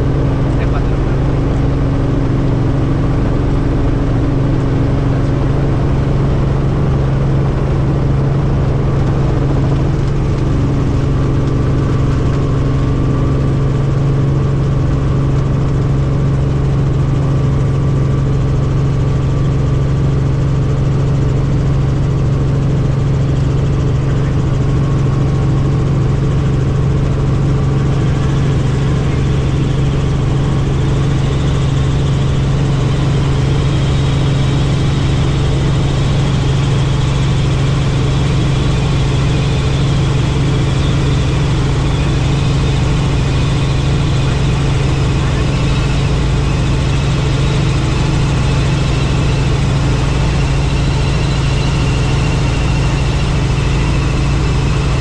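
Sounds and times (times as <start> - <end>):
helicopter engine and rotors: 0.0 - 55.0.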